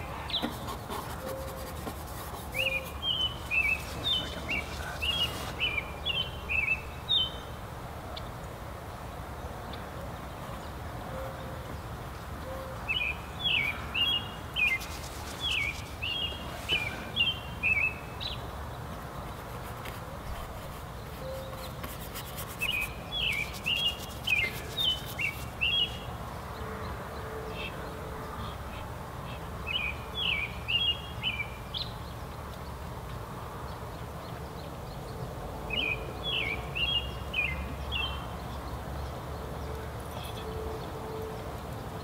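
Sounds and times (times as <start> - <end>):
low outdoor background noise: 0.0 - 42.0.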